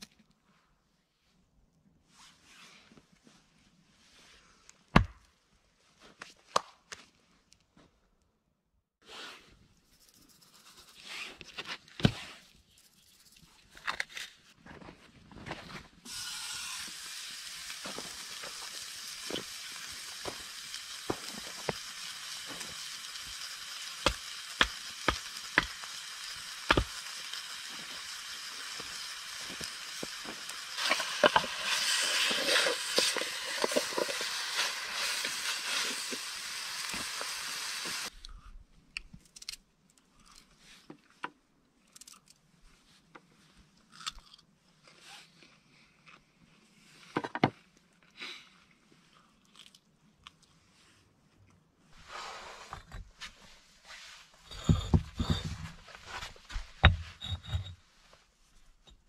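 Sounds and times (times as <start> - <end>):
steak sizzling in a frying pan: 16.1 - 38.1.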